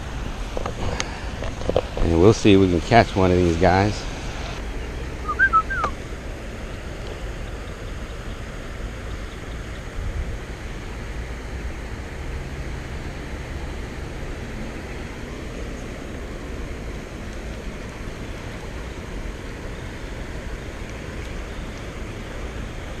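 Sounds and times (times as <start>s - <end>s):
bird whistling call: 5.2s - 6.0s
water rushing over a weir: 9.8s - 23.0s.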